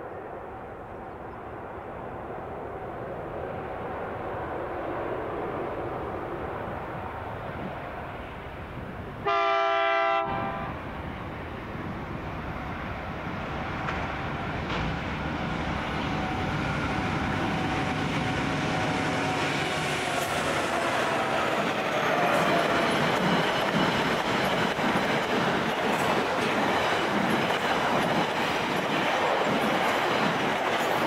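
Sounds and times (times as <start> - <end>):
freight train rumbling on rails: 0.0 - 31.0
locomotive horn blast: 9.2 - 10.8.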